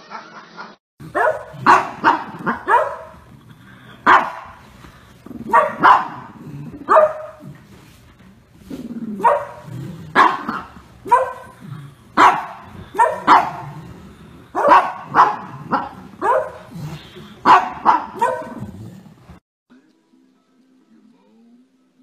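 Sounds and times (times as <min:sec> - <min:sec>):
small dog barking: 0:01.1 - 0:03.2, 0:04.0 - 0:04.6, 0:05.5 - 0:06.3, 0:06.9 - 0:07.4, 0:09.2 - 0:11.6, 0:12.2 - 0:13.8, 0:14.6 - 0:16.7, 0:17.4 - 0:18.6.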